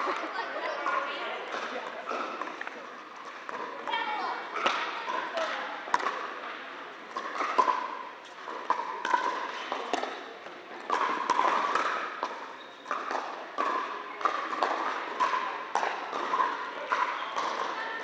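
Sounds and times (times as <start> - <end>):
paddles striking plastic ball: 4.6 - 6.4, 7.1 - 17.8.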